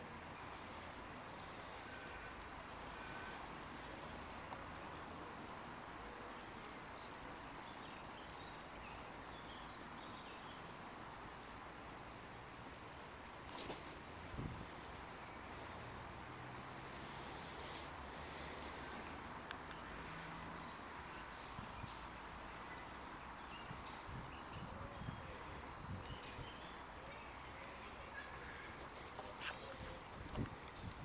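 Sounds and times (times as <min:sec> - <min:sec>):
crow wing flaps: 0:13.4 - 0:14.5, 0:28.8 - 0:30.4.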